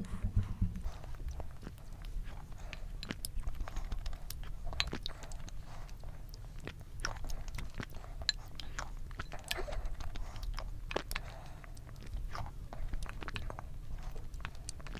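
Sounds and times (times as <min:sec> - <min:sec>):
eating mouth sounds: 0:00.0 - 0:14.9.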